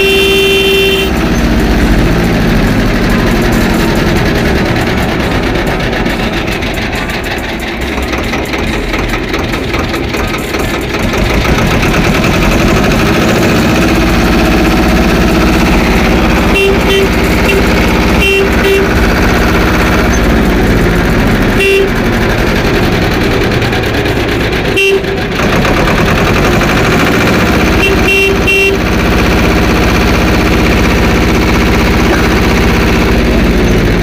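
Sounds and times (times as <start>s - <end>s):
horn tooting: 0.0s - 4.9s, 12.8s - 22.3s, 24.6s - 25.4s, 27.4s - 29.6s
vehicle engine running: 0.0s - 34.0s.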